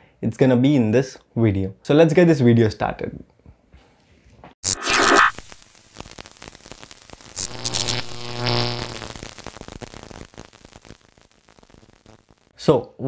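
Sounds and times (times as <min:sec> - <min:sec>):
crackling electric sparks: 0:04.6 - 0:12.5
loud electrical buzz: 0:04.6 - 0:12.5.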